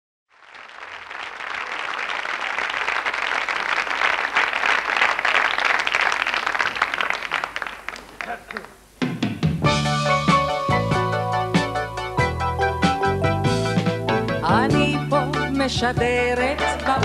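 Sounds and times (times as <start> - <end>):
audience applauding: 0.3 - 8.8, 16.5 - 17.0.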